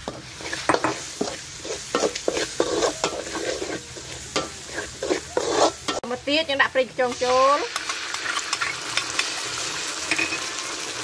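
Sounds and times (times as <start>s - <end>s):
metal spoon scraping a wok: 0.0s - 6.0s
oil sizzling in a wok: 0.0s - 11.0s.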